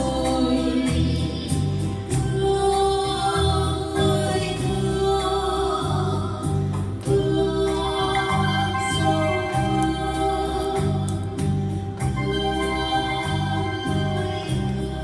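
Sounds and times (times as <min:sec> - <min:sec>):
electronic keyboard accompaniment: 0:00.0 - 0:15.0
two women singing: 0:00.0 - 0:15.0.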